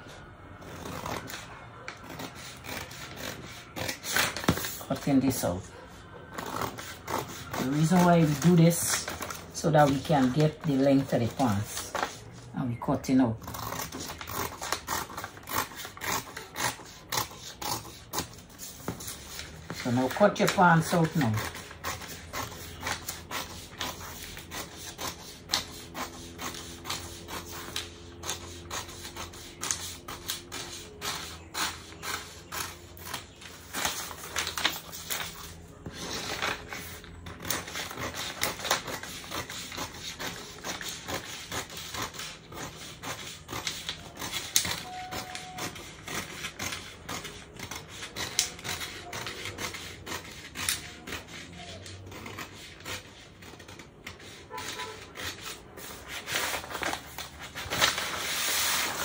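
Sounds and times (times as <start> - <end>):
scissors cutting paper: 0.6 - 5.5, 6.3 - 59.0
paper sheet rustling: 6.4 - 12.4, 18.5 - 59.0.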